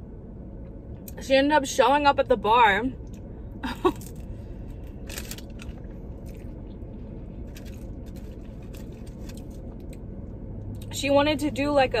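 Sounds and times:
low steady hum: 0:00.0 - 0:12.0
chewing food: 0:05.1 - 0:10.0.

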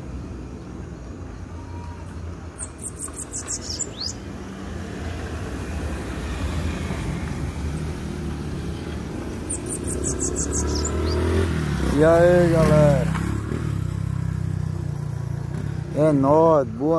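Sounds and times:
vehicle rumble: 0:00.0 - 0:16.9
bird singing high trill: 0:01.6 - 0:04.4, 0:09.4 - 0:11.6.

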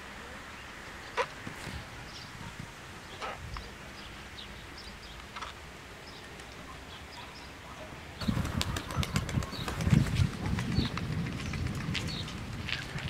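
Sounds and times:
small birds chirping: 0:00.2 - 0:13.0
wind buffeting microphone: 0:08.2 - 0:13.0.

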